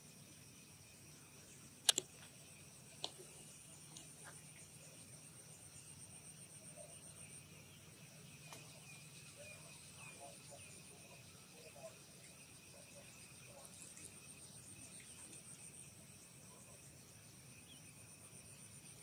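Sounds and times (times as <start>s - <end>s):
insects trilling: 0.0s - 19.0s
sharp clicks: 1.8s - 2.3s.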